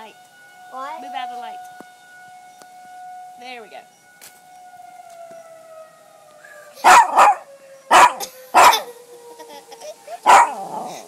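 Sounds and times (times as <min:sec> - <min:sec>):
siren winding down: 0:00.0 - 0:11.0
dog barking: 0:06.8 - 0:08.9, 0:10.2 - 0:10.8.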